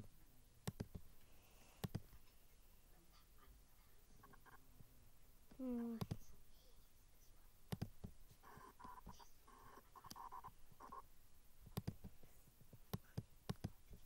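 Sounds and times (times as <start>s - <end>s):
trackpad clicks and taps: 0.6s - 1.1s, 1.8s - 2.2s, 7.7s - 11.0s, 11.6s - 12.2s, 12.8s - 14.0s.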